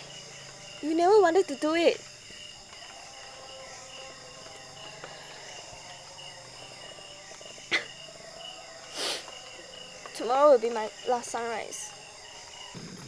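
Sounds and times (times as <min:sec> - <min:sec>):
crickets and insects trilling: 0:00.0 - 0:13.0
short hiss: 0:08.9 - 0:09.3.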